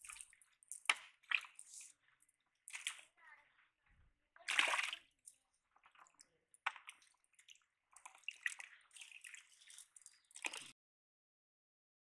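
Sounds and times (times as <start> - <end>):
water splashing in a bucket: 0.0 - 2.0, 2.6 - 3.2, 4.4 - 10.8.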